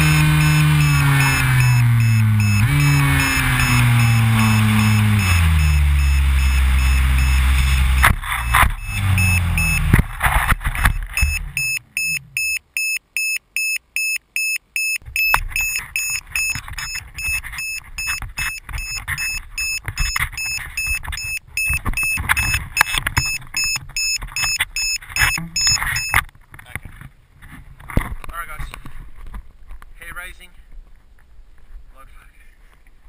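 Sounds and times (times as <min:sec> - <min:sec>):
electric motor winding down: 0:00.0 - 0:09.9
rapid electronic beeping: 0:00.1 - 0:09.9, 0:10.8 - 0:26.2.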